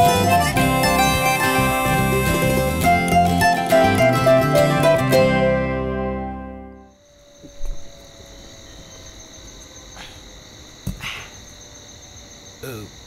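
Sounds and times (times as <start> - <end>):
crickets chirring: 6.9 - 13.0.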